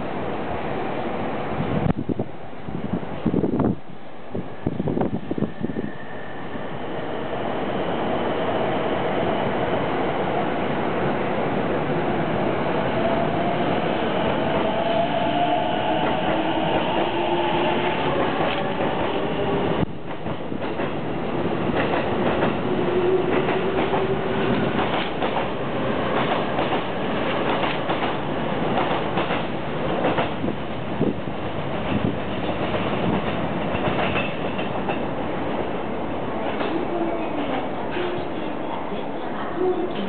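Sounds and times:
train wheels clacking over rail joints: 21.7s - 30.5s, 31.8s - 35.1s.

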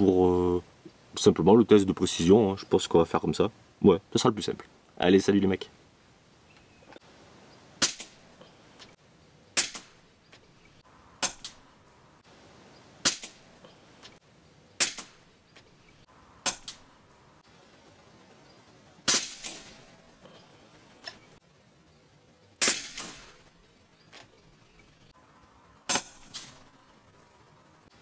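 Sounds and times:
rifle shots: 19.0s - 19.9s, 22.6s - 23.4s.

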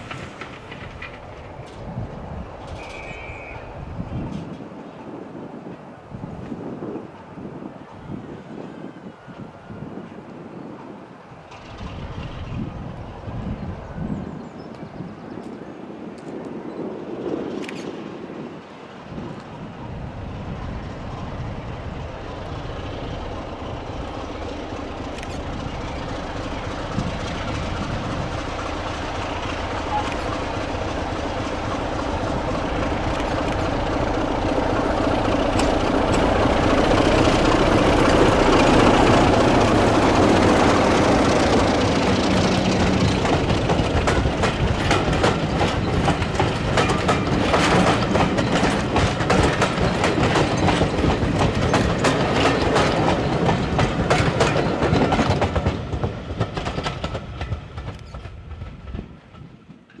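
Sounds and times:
train wheels clattering over rail joints: 0.0s - 3.3s, 22.1s - 60.0s
diesel locomotive engine: 0.0s - 60.0s.

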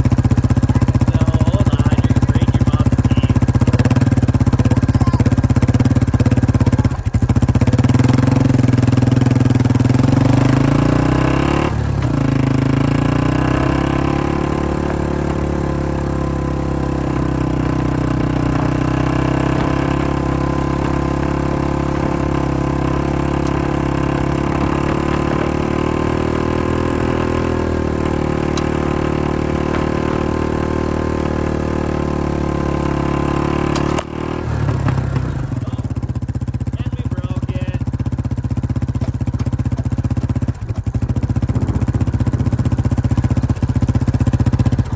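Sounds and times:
vehicle engine cruising: 0.0s - 44.9s.

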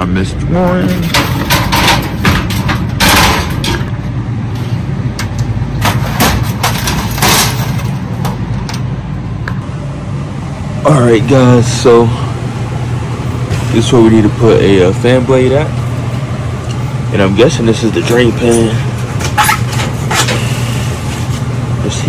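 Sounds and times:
low hum: 0.0s - 22.0s
wire shelves clattering and scraping: 0.5s - 8.9s, 17.8s - 21.4s.

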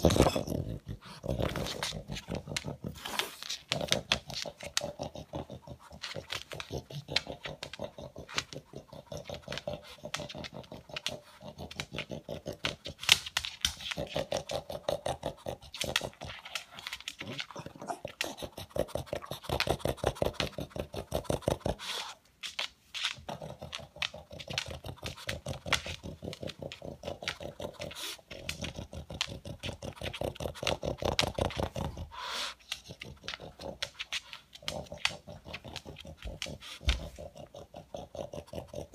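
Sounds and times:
dog sniffing and snuffling: 0.0s - 38.9s.

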